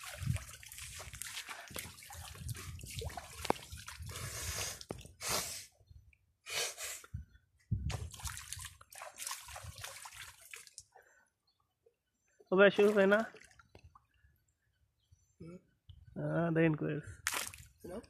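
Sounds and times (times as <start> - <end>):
shallow water splashing: 0.0 - 4.2, 7.9 - 10.9, 12.7 - 14.2.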